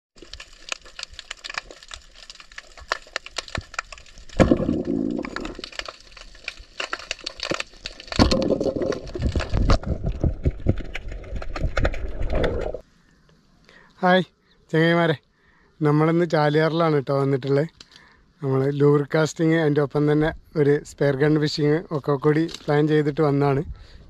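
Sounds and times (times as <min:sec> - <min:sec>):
sharp crackling clicks underwater: 0:00.2 - 0:12.8, 0:17.7 - 0:18.2.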